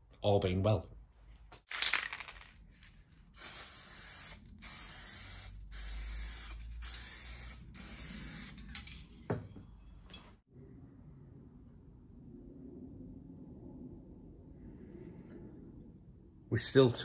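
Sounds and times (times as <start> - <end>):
aerosol can spraying: 3.4 - 8.6.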